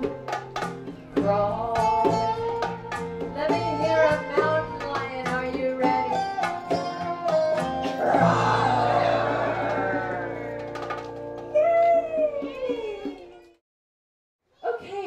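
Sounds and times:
guitar picking a melody: 0.0 - 11.6
hand drums: 0.0 - 13.4.

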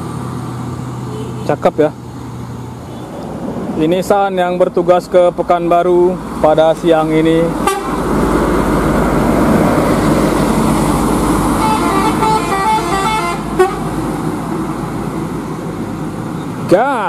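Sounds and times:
bus engine passing: 0.0 - 17.0
musical horn tune: 7.6 - 8.0, 11.6 - 14.0.

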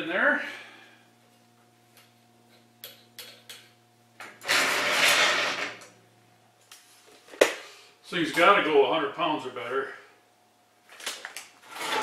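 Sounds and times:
faint steady hum: 0.0 - 12.0
sliding metal scrape: 4.4 - 5.8, 11.6 - 12.0.

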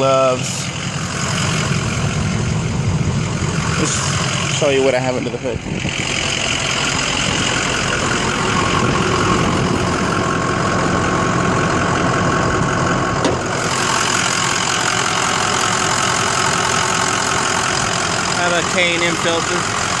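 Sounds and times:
diesel engine idling: 0.0 - 20.0.

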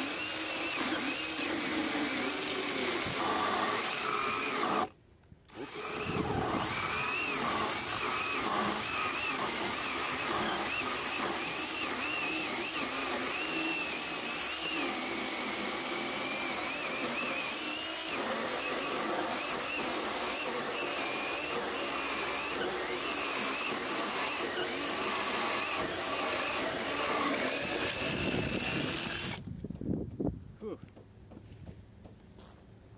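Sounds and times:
chainsaw cutting wood: 0.0 - 29.5.

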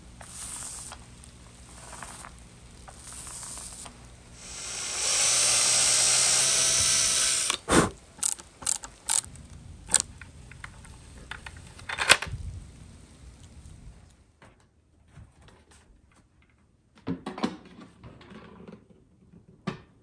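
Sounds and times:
cordless drill running: 0.2 - 1.0, 1.8 - 9.3
sharp clicks and knocks: 2.2 - 9.3, 9.9 - 12.3.

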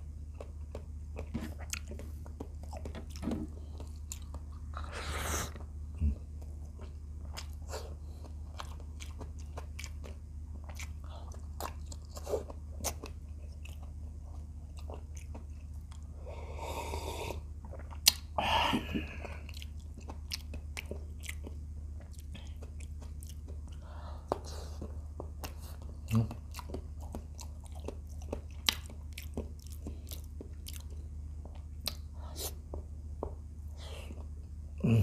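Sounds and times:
steady low hum: 0.0 - 35.0
close chewing with wet mouth clicks: 6.4 - 16.1, 17.6 - 18.3, 19.4 - 32.5.

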